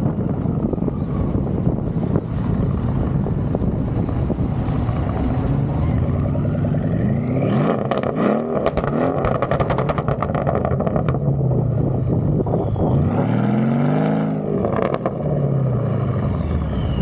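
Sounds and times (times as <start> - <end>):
car engine revving: 2.5 - 17.0
exhaust pops and crackles: 7.8 - 11.8.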